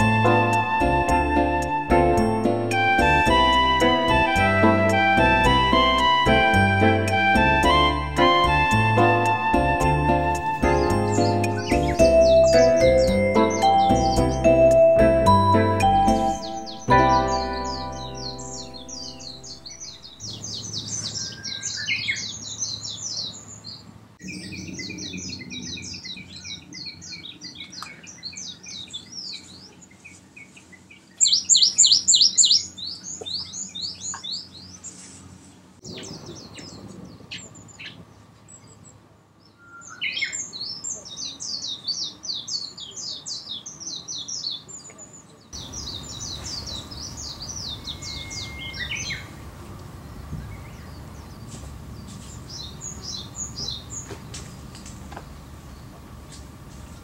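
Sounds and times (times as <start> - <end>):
songbirds chirping and trilling: 0.0 - 57.0.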